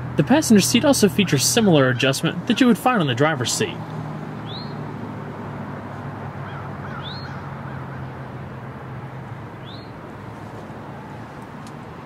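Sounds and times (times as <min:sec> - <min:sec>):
bird chirping: 0:04.4 - 0:04.8, 0:06.5 - 0:07.5, 0:09.6 - 0:10.0.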